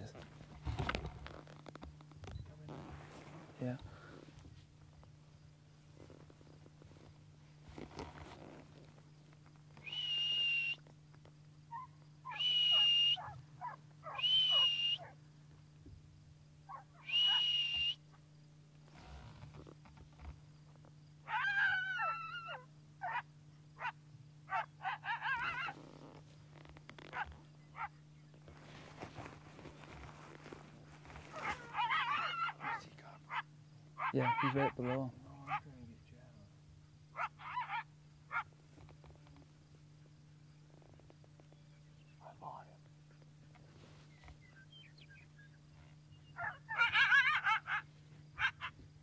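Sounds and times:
coyote howling: 11.7 - 15.2, 16.6 - 18.0, 21.2 - 26.2, 27.0 - 28.0, 31.1 - 35.8, 37.1 - 38.6, 44.5 - 48.8
coyote yips and barks: 11.7 - 15.2, 16.7 - 18.0, 21.2 - 25.8, 27.1 - 28.0, 31.1 - 35.7, 37.1 - 38.5, 44.8 - 48.8.

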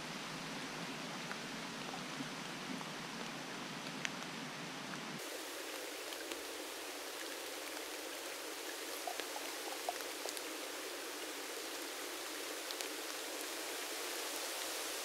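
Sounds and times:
rain falling on leaves: 0.0 - 15.0
water drips: 5.7 - 11.8.

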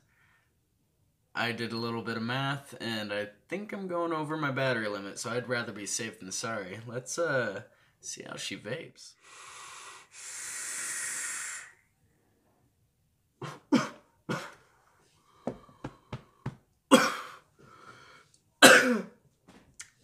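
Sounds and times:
vape hissing: 9.6 - 11.8
person coughing: 13.4 - 14.7, 16.9 - 17.4, 18.6 - 19.2.

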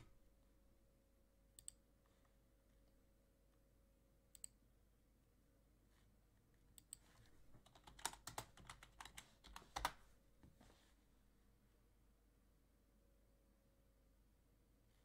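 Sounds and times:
faint keyboard typing: 1.6 - 3.0, 4.3 - 4.6, 6.4 - 10.2.

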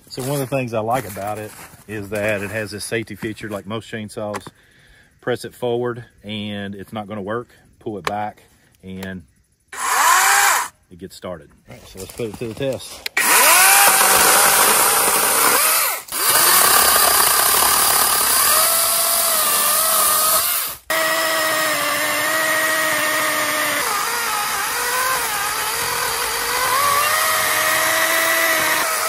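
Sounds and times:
electric chainsaw cutting wood: 9.8 - 10.7, 13.2 - 29.0.

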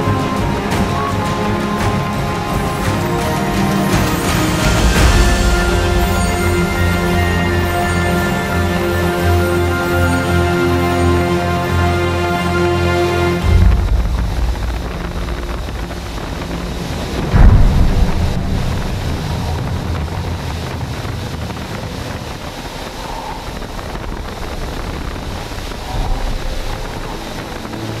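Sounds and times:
jet engine and airflow rush: 0.0 - 11.5, 12.4 - 28.0
wind buffeting microphone: 13.4 - 28.0.

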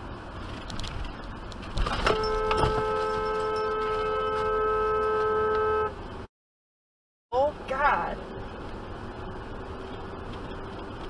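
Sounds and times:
road and engine noise: 0.0 - 6.3, 7.3 - 11.0
car horn blaring: 2.0 - 6.0.

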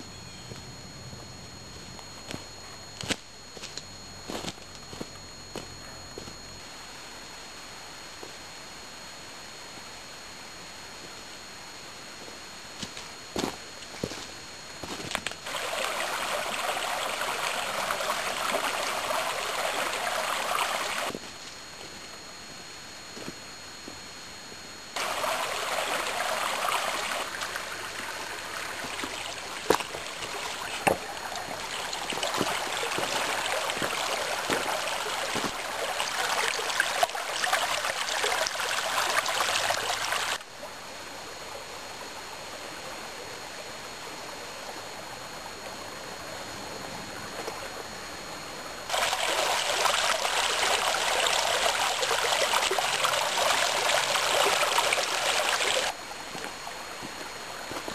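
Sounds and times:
stream splashing over stones: 14.8 - 21.2, 25.0 - 40.4, 48.9 - 56.0.

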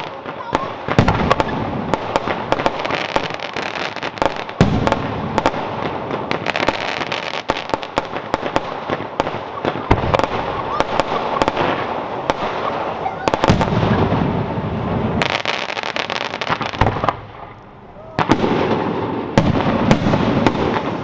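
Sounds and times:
fireworks crackling: 0.0 - 21.0
deep firework boom: 0.9 - 2.9, 4.6 - 6.5, 13.3 - 15.4, 16.0 - 21.0.

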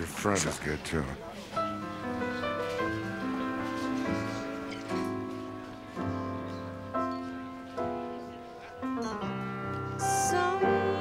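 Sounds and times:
piano chords ringing: 1.6 - 11.0
woman singing: 10.0 - 11.0.

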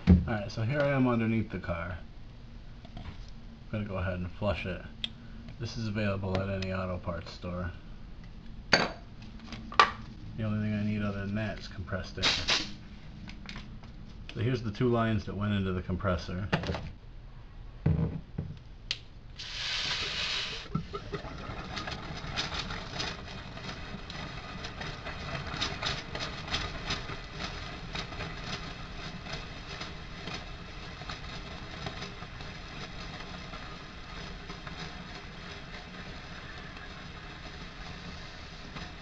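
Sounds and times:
sputtering hiss of fluid: 19.4 - 21.3.

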